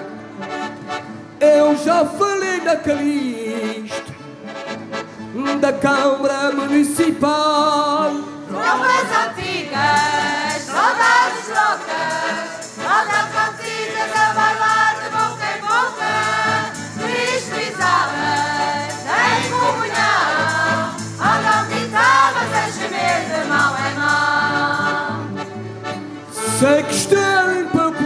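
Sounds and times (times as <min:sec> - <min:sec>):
accordions playing: 0:00.0 - 0:07.4, 0:08.0 - 0:28.0
acoustic guitar: 0:00.0 - 0:28.0
choir singing: 0:08.5 - 0:25.5
tambourine jingling: 0:09.6 - 0:26.0.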